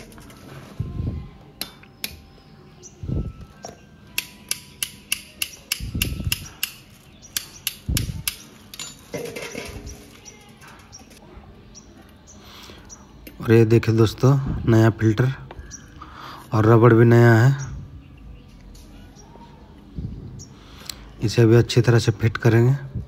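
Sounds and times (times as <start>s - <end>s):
metal parts clinking against steel bowl: 6.3s - 11.2s.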